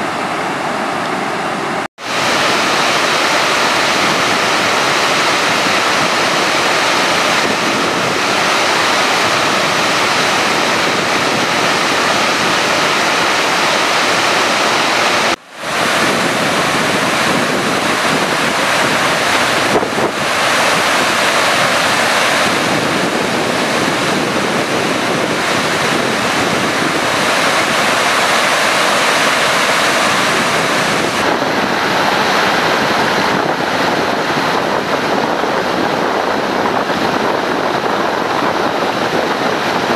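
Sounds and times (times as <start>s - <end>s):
water rushing down rocky spillway: 2.0s - 39.9s.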